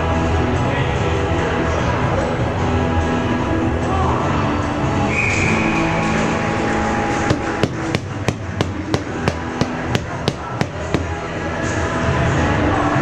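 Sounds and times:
background music: 0:00.0 - 0:13.0
sharp knocks: 0:07.3 - 0:11.2.

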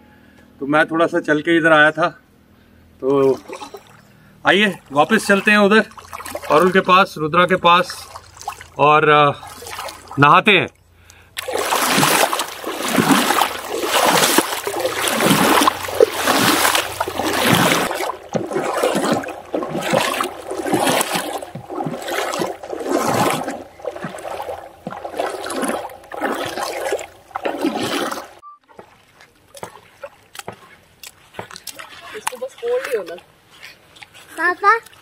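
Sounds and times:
footsteps splashing in shallow water: 0:03.2 - 0:10.2, 0:11.1 - 0:35.0.

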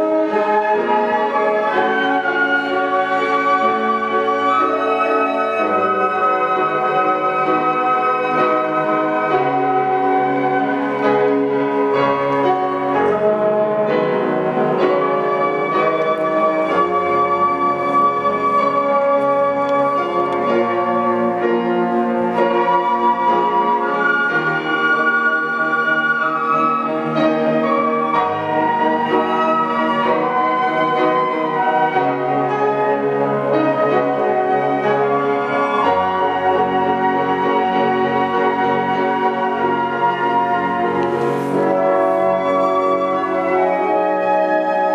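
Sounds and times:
flute ensemble playing: 0:00.0 - 0:44.9.

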